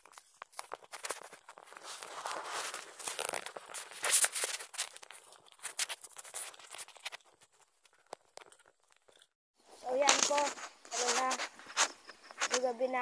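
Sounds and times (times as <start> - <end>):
footsteps crunching on gravel: 0.0 - 7.7, 9.9 - 13.0.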